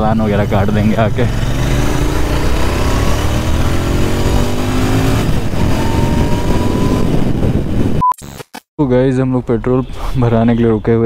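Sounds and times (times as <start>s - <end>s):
motorcycle engine accelerating: 0.0s - 8.0s
wind rumble on microphone: 2.5s - 8.0s.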